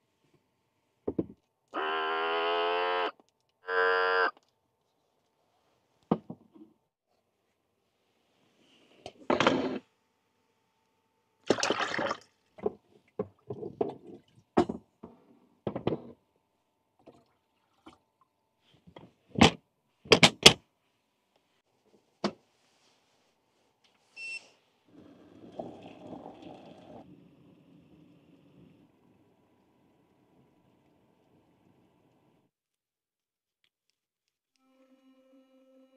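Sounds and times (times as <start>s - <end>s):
water poured into pot: 11.5s - 12.3s
low uneven noise: 25.0s - 32.5s.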